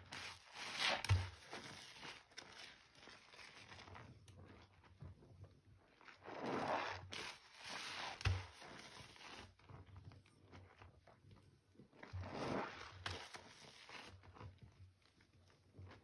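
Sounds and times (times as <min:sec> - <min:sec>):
hand sloshing through foamy water: 0:06.2 - 0:09.2, 0:12.2 - 0:13.0.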